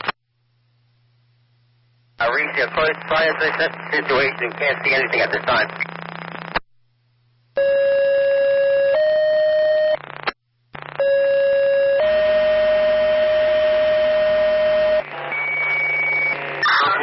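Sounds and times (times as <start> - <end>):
radio hiss: 2.2 - 6.6.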